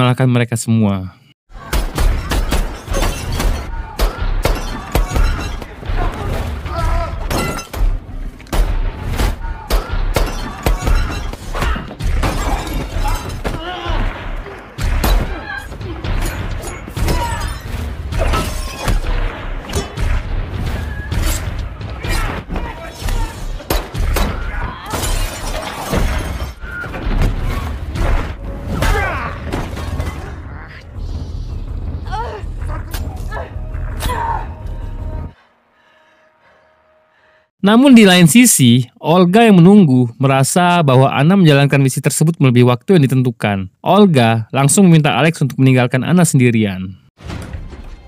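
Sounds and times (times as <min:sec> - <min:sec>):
punches and heavy thuds: 0:01.5 - 0:30.4
things shattering: 0:09.1 - 0:30.4
glass and crockery shattering: 0:12.2 - 0:13.5, 0:24.9 - 0:27.5.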